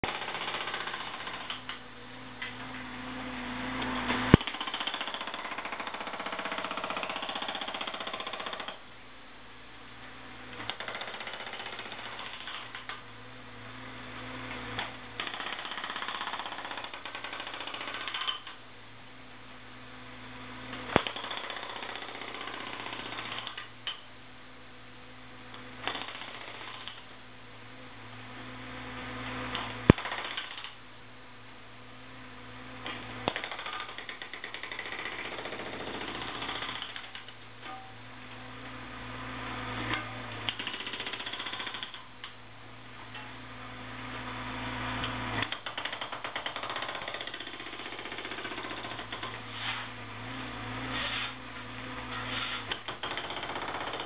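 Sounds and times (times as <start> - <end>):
hydraulic breaker hammering concrete: 0.0 - 1.8, 4.3 - 8.8, 10.6 - 13.0, 14.8 - 18.6, 20.9 - 24.0, 29.5 - 30.8, 33.2 - 37.9, 39.9 - 42.1, 45.4 - 49.5, 52.2 - 54.0.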